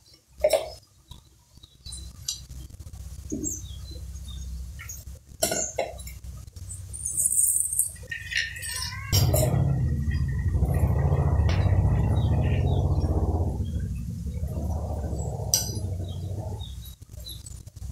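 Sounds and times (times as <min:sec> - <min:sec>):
low steady hum: 0:07.9 - 0:17.9.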